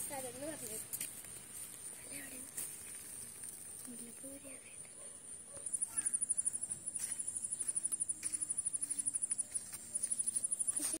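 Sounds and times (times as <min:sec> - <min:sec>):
insect pulsing trill: 0:05.6 - 0:11.0.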